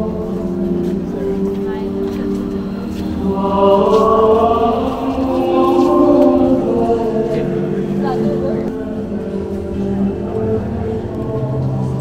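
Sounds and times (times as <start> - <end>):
choir chanting long notes: 0.0 - 12.0
steady low drone: 0.0 - 12.0.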